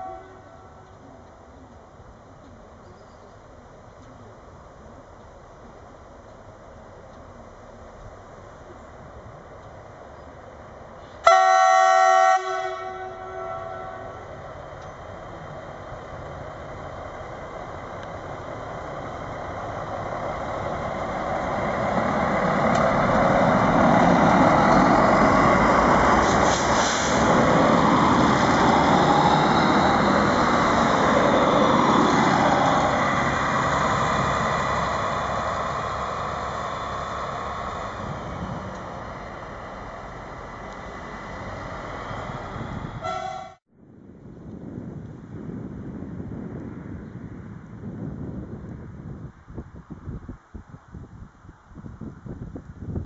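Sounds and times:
diesel train engine: 0.0s - 43.7s
wheels on rails: 14.2s - 43.6s.

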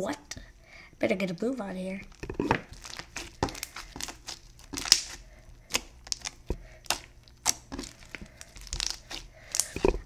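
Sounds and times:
slime squeezed by hand: 2.4s - 10.0s.

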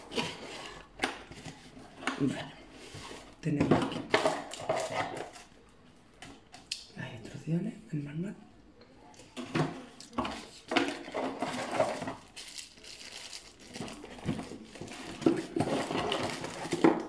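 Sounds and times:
plastic bags crinkling: 10.6s - 17.0s.

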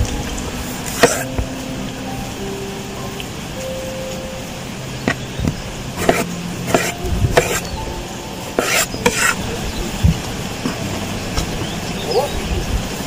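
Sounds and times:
knife slicing scrapes: 1.0s - 1.2s, 6.0s - 7.7s, 8.6s - 9.4s.

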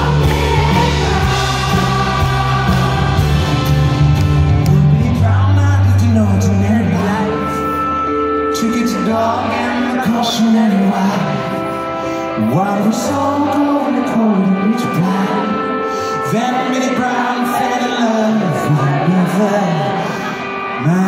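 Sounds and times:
grand piano accompaniment: 0.0s - 21.0s
man singing into microphone: 4.6s - 21.0s.

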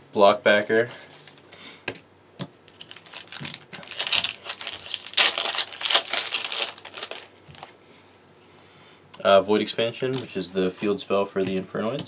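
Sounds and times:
foil wrapper crinkling: 2.7s - 7.8s.

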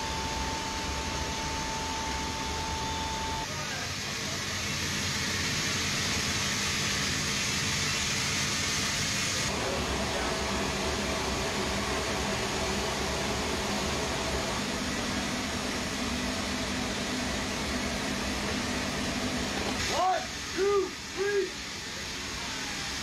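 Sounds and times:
aircraft machine hum and hiss: 0.0s - 23.0s.

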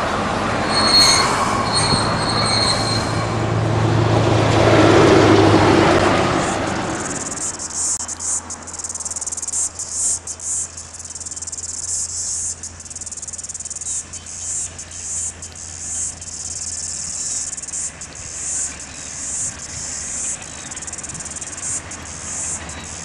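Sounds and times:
freight train passing: 0.0s - 23.0s
insects shrilling in pulses: 0.7s - 3.6s, 4.8s - 23.0s.

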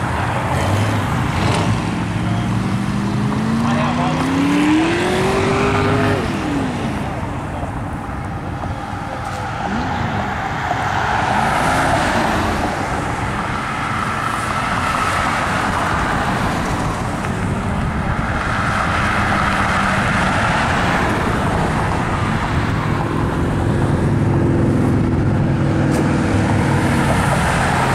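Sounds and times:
cars passing on a road: 0.0s - 27.9s
engine revving: 0.6s - 7.2s.

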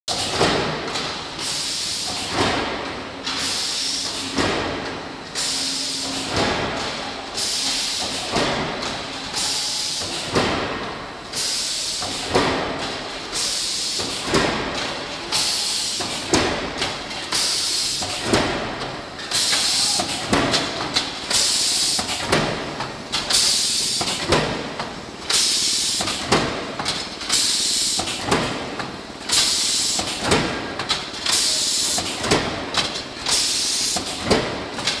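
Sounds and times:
pneumatic feeder air hissing: 21.3s - 22.2s, 33.3s - 34.2s.

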